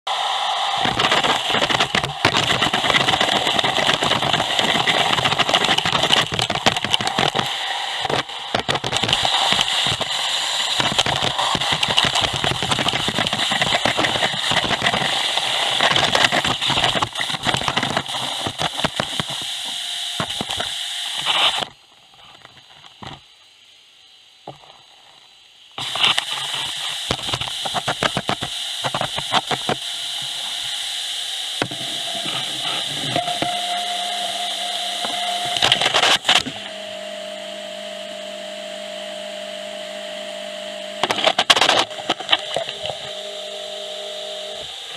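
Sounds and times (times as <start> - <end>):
vacuum air rush: 0.1 - 20.2
steady hum with whine: 0.1 - 44.9.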